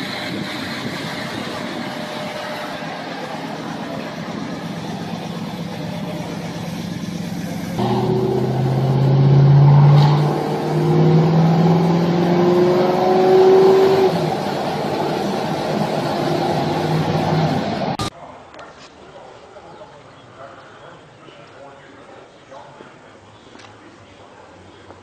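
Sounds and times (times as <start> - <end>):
car engine accelerating: 0.0 - 18.1.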